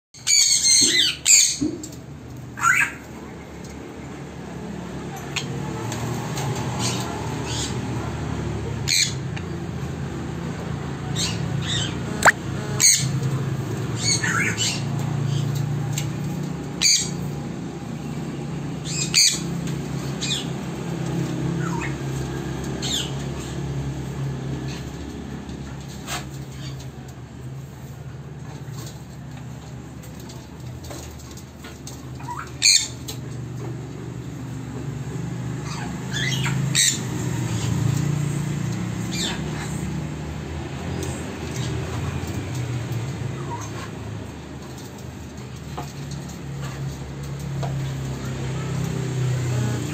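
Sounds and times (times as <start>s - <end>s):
parrots squawking: 0.2s - 1.6s, 2.6s - 3.0s, 6.8s - 7.9s, 11.1s - 13.2s, 14.0s - 15.4s, 18.8s - 19.5s, 21.5s - 22.1s, 22.8s - 23.6s, 32.2s - 33.0s, 35.6s - 38.0s, 39.0s - 40.1s, 43.2s - 44.0s.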